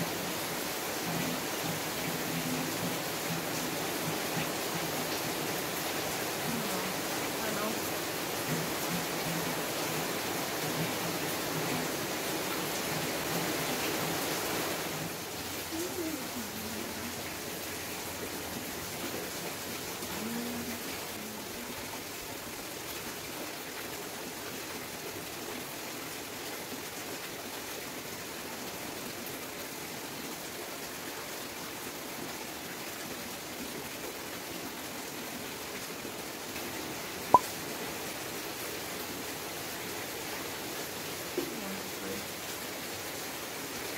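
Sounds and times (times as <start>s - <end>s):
steady rain falling: 0.0s - 43.9s.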